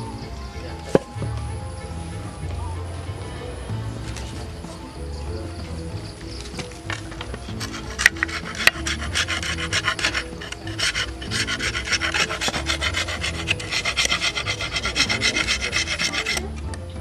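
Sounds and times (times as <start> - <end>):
horn rasping on wet stone: 6.5 - 16.6.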